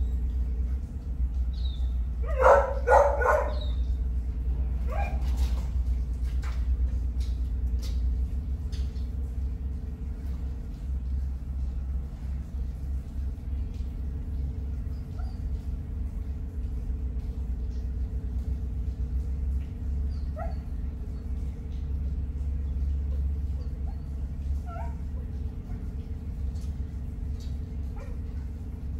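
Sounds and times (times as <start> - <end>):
low rumble: 0.0 - 28.9
steady hum: 0.0 - 28.9
faint dog barks: 2.2 - 3.8.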